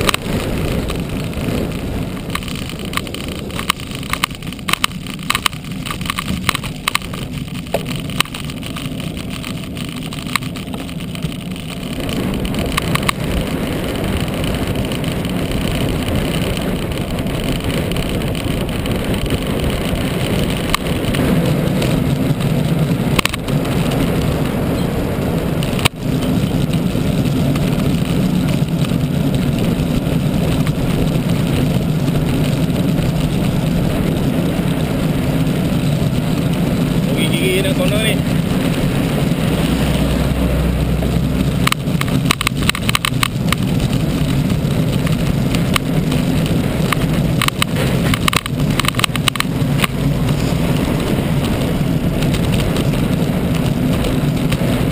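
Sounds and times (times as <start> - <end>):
small rattling clicks: 0.0 - 24.5, 41.4 - 54.9
road and tyre noise: 0.0 - 54.9
wind rushing over microphone: 0.0 - 54.9.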